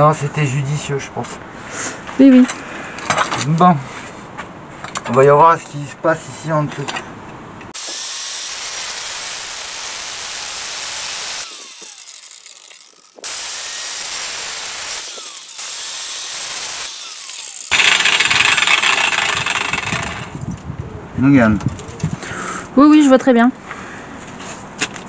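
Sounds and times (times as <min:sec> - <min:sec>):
angle grinder cutting metal: 0:07.8 - 0:20.3.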